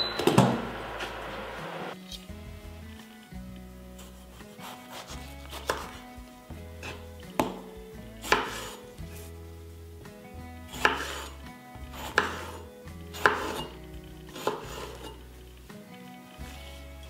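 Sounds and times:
knife cutting on wooden board: 0:04.6 - 0:06.0, 0:08.2 - 0:08.8, 0:10.7 - 0:11.3, 0:12.0 - 0:12.6, 0:13.2 - 0:13.8, 0:14.4 - 0:15.2.

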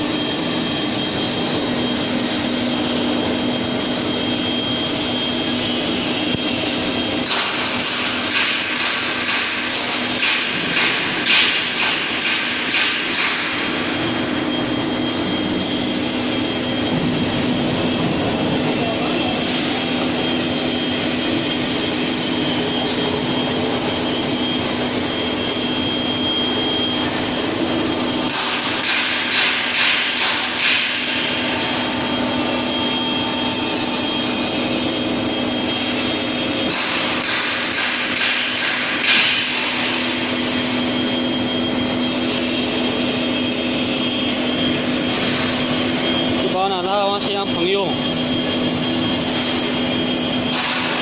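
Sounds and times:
faint high whine: 0:00.0 - 0:07.8, 0:13.6 - 0:28.8, 0:31.0 - 0:36.7, 0:39.7 - 0:51.0
oil press mechanical drone: 0:00.0 - 0:51.0.

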